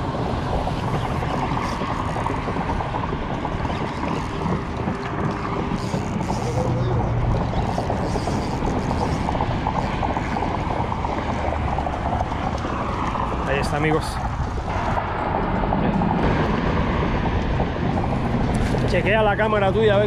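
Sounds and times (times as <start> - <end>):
wind on microphone: 0.0 - 20.0
fishing reel gears whirring: 0.1 - 15.0.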